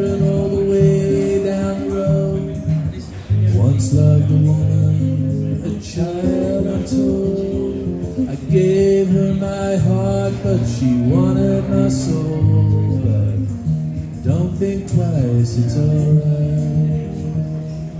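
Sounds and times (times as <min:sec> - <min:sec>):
acoustic guitar strumming: 0:00.0 - 0:17.9.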